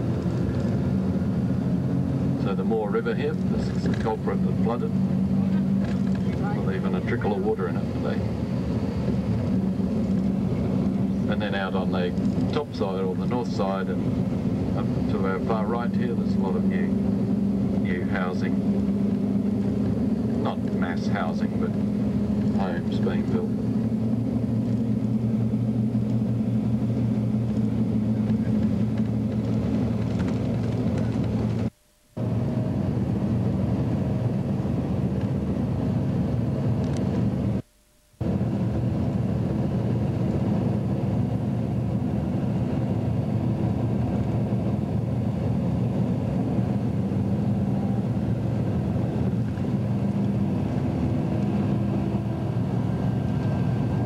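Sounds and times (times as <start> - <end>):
vehicle engine and road drone: 0.0 - 54.0.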